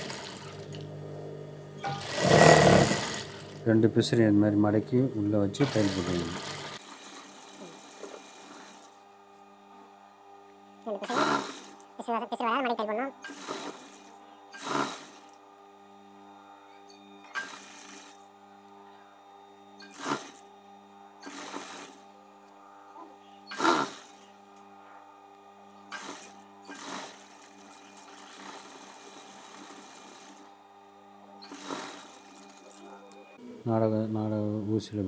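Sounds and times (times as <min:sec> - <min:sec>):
sewing machine stitching: 0:00.0 - 0:00.8, 0:01.8 - 0:03.6, 0:05.6 - 0:09.0, 0:11.0 - 0:11.8, 0:13.2 - 0:15.4, 0:17.2 - 0:18.2, 0:19.8 - 0:20.4, 0:21.2 - 0:22.1, 0:23.5 - 0:24.3, 0:25.9 - 0:30.5, 0:31.4 - 0:33.2
motor hum: 0:00.0 - 0:35.0.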